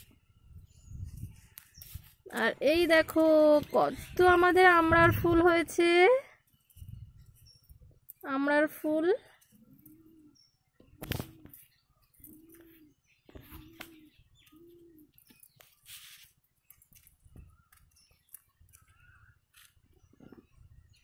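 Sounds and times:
dove cooing: 9.6s - 15.2s.

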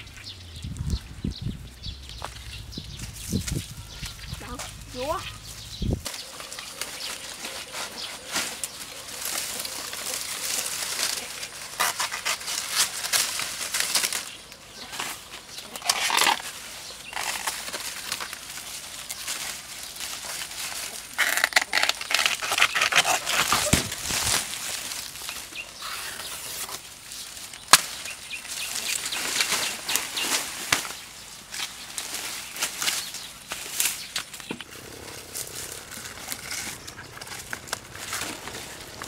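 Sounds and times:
dry leaves rustling and crackling: 0.0s - 39.0s
sharp crack: 27.6s - 28.2s.

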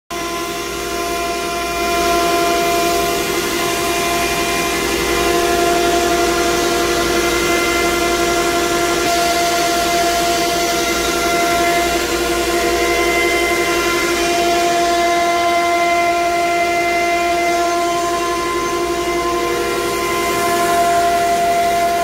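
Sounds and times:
industrial machine drone: 0.1s - 22.0s
whining machine tones: 0.1s - 22.0s.

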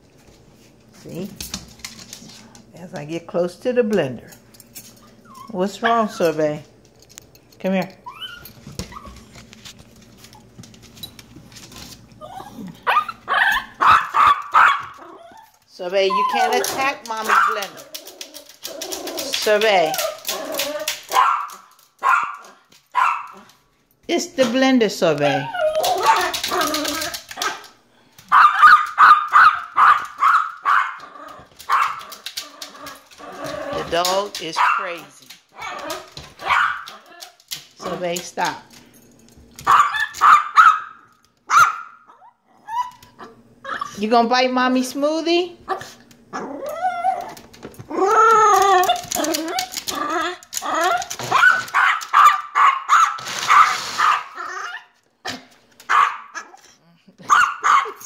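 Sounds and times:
small dog whining: 5.0s - 5.6s, 8.0s - 9.3s, 12.2s - 13.8s, 25.3s - 27.2s, 42.1s - 44.0s, 45.8s - 51.5s
small dog barking: 12.9s - 15.2s, 16.4s - 17.7s, 21.1s - 23.5s, 28.3s - 31.0s, 31.7s - 32.1s, 34.6s - 37.0s, 39.6s - 42.2s, 51.3s - 54.8s, 55.9s - 56.6s, 57.2s - 58.0s.

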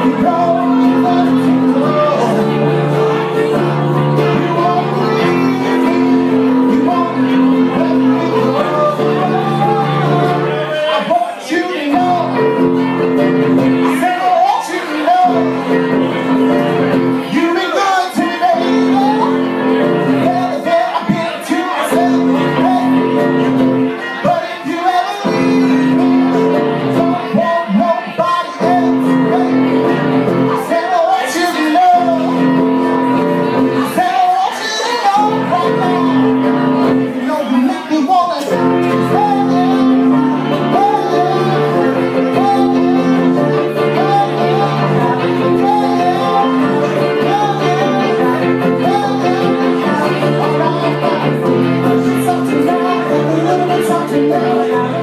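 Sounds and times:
guitar chords: 0.0s - 55.0s
live rock band playing: 0.0s - 55.0s
person singing: 0.0s - 55.0s.

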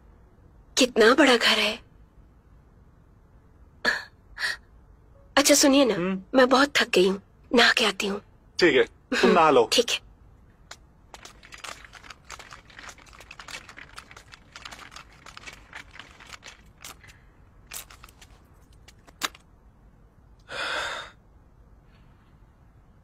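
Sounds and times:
handling clicks and rustles: 10.6s - 19.5s.

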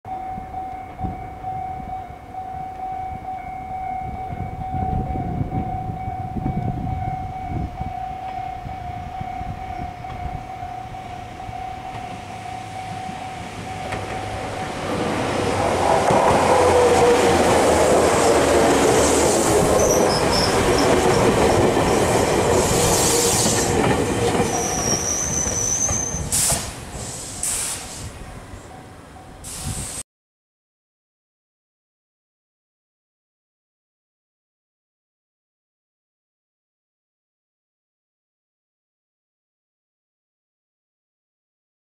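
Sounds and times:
level crossing alarm ringing: 0.1s - 26.2s
train wheels on rails: 8.2s - 30.0s
wheel and brake squeal: 19.1s - 21.1s, 22.6s - 28.1s.

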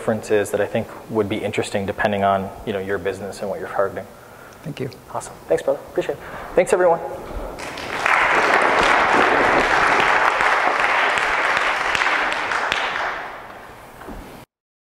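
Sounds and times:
audience applauding: 7.6s - 13.8s.

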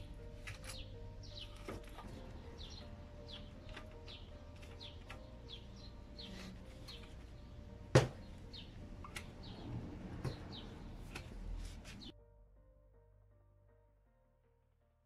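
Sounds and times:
small bird chirping: 0.0s - 9.7s.

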